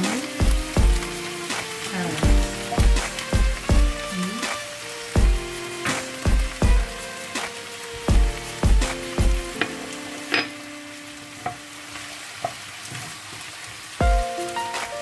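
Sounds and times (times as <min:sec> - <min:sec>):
background music with deep beats: 0:00.0 - 0:09.7, 0:14.0 - 0:15.0
food sizzling in a frying pan: 0:00.0 - 0:15.0.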